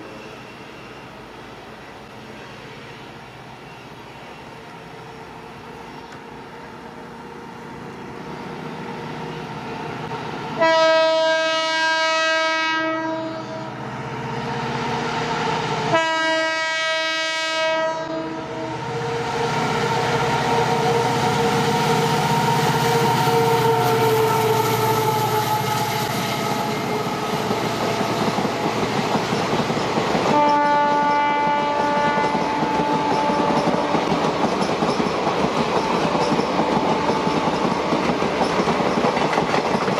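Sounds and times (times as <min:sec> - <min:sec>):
diesel locomotive engine rumble: 0:00.0 - 0:39.9
multi-tone train horn blasts: 0:10.5 - 0:13.8, 0:15.8 - 0:28.9, 0:30.2 - 0:34.2
train wheels clattering over rail joints: 0:26.5 - 0:39.9.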